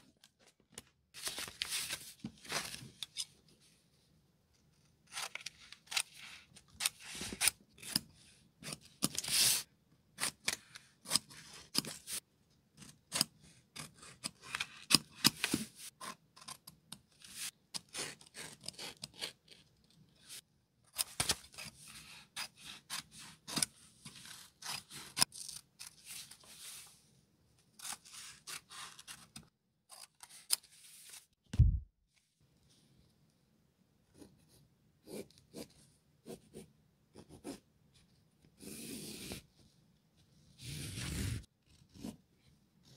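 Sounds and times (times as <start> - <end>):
paper rustling: 0.2 - 3.1.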